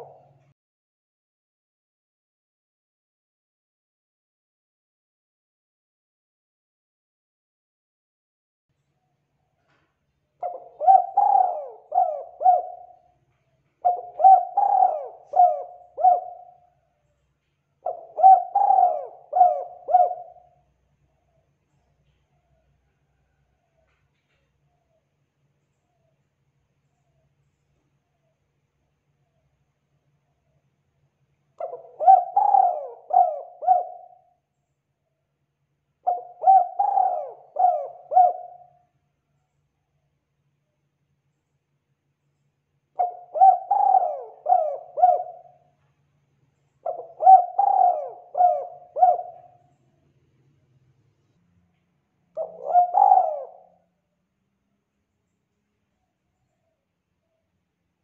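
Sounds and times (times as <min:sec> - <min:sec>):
dove cooing: 0:00.0 - 0:00.5, 0:10.4 - 0:16.8, 0:17.8 - 0:21.4, 0:31.6 - 0:34.4, 0:36.0 - 0:38.8, 0:43.0 - 0:45.8, 0:46.8 - 0:49.9, 0:52.4 - 0:53.9.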